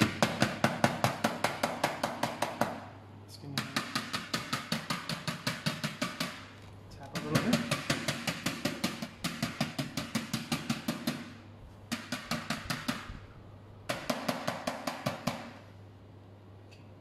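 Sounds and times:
metal molds tapping on baking tray: 3.5s - 11.3s.

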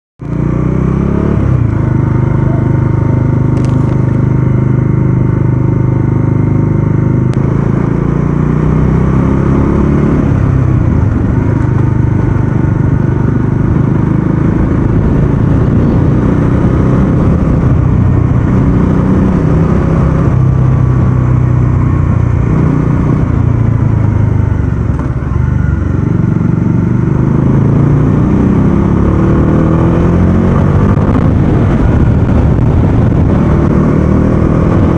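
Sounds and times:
motorcycle engine running: 0.2s - 34.9s.

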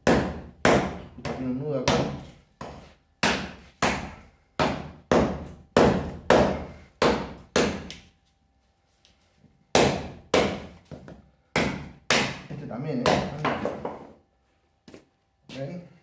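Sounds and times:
knife chopping into wood: 0.0s - 8.0s, 11.6s - 14.0s.

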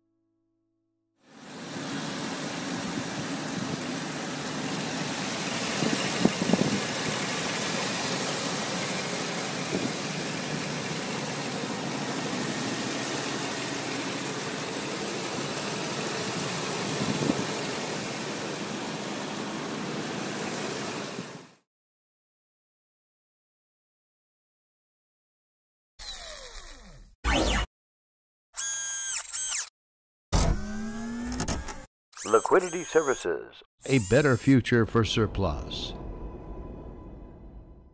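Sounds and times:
engine idling: 1.5s - 21.2s.

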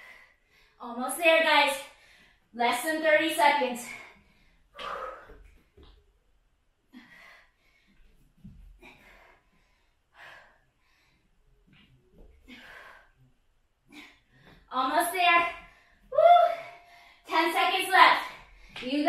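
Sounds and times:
woman breathing hard: 0.0s - 0.8s, 3.8s - 5.9s, 6.9s - 14.7s.

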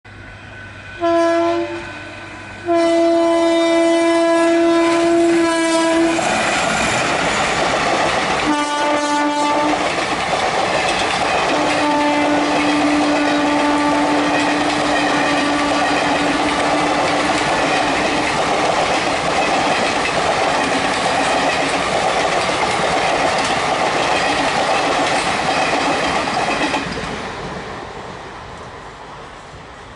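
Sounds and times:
train coaches rushing past: 0.1s - 29.9s
locomotive air horn blasts: 1.0s - 6.2s, 8.4s - 9.8s, 11.5s - 16.3s.

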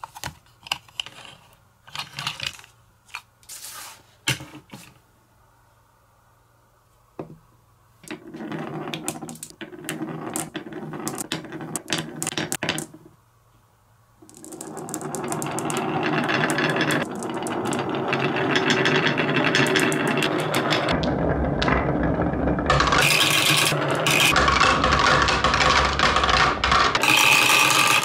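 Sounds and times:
marbles rolling on wood: 8.0s - 13.2s, 14.2s - 28.0s
marbles clicking: 8.6s - 12.9s, 14.2s - 28.0s.

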